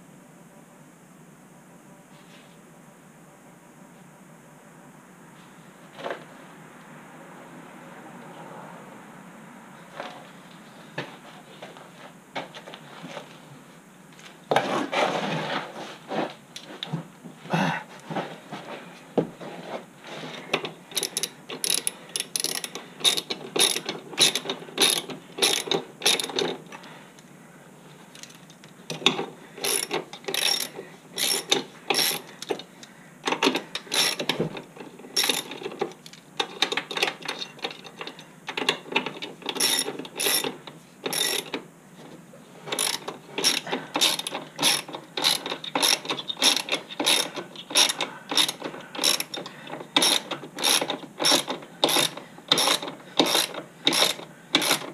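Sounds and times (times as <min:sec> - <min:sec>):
socket ratchet clicking: 0:20.9 - 0:26.5, 0:29.6 - 0:32.6, 0:33.3 - 0:34.3, 0:39.1 - 0:40.5, 0:41.1 - 0:41.5, 0:42.8 - 0:54.9.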